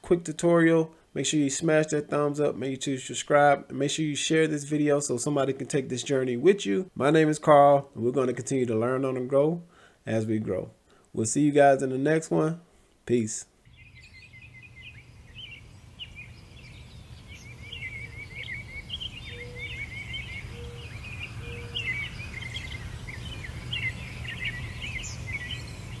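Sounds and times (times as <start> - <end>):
small birds chirping: 13.6 - 26.0.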